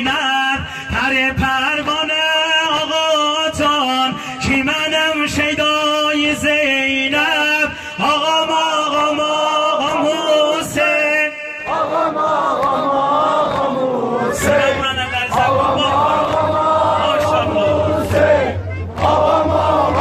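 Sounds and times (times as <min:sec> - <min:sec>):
man singing a lament: 0:00.0 - 0:12.2, 0:12.9 - 0:18.6
crowd beating chests: 0:11.7 - 0:20.0.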